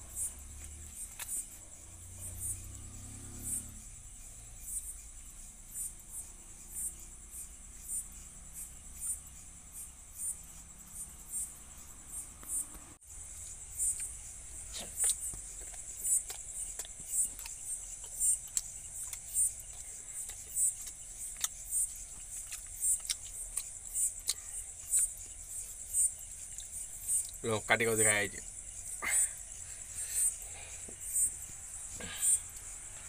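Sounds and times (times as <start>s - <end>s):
crickets chirping: 0.0s - 33.0s
person eating by hand: 0.6s - 1.7s, 13.1s - 27.4s.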